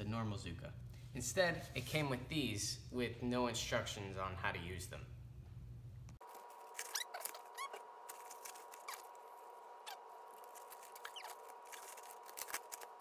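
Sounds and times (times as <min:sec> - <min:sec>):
faint steady hum: 0:00.0 - 0:13.0
fabric panels squeaking and clicking: 0:06.7 - 0:09.1, 0:09.8 - 0:13.0.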